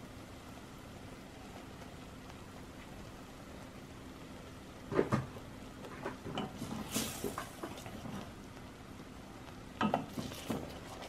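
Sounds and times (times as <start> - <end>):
wooden spoon stirring in pot: 5.9 - 8.5, 9.8 - 11.0.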